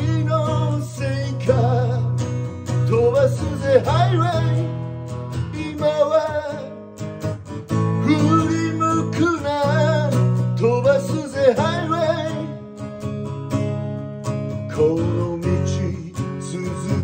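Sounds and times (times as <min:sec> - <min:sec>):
man singing: 0:00.0 - 0:07.1, 0:07.7 - 0:12.8, 0:14.4 - 0:17.0
acoustic guitar strumming: 0:00.0 - 0:17.0.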